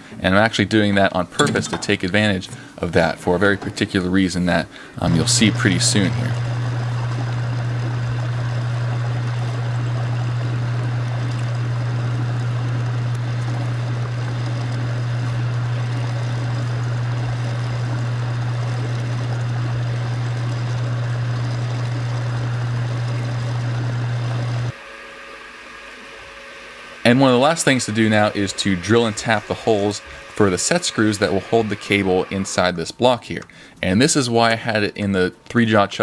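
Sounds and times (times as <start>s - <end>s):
metal lathe drilling: 5.0s - 24.8s, 25.5s - 32.7s.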